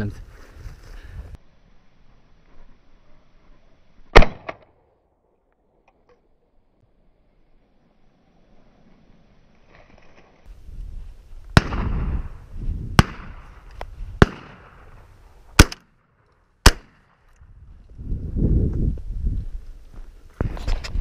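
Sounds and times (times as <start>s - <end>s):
shotgun shots: 4.1s - 4.6s, 11.6s - 12.2s, 13.0s - 13.6s, 14.2s - 15.0s, 15.6s - 16.0s, 16.6s - 17.2s.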